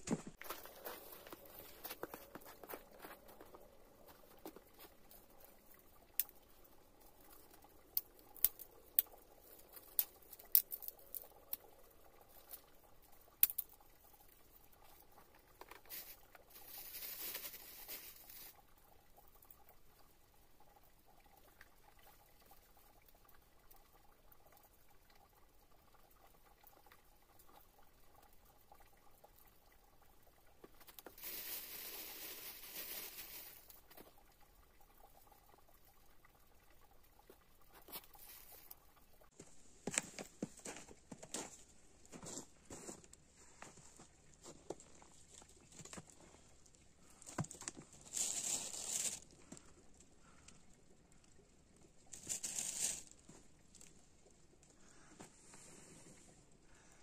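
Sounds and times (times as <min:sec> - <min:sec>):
crinkly rustling: 0:00.0 - 0:06.4, 0:15.5 - 0:18.7, 0:30.6 - 0:34.2, 0:37.7 - 0:49.7, 0:52.1 - 0:53.9
plastic bag rustling: 0:15.8 - 0:18.6, 0:31.0 - 0:33.7, 0:47.8 - 0:49.2, 0:52.2 - 0:53.1.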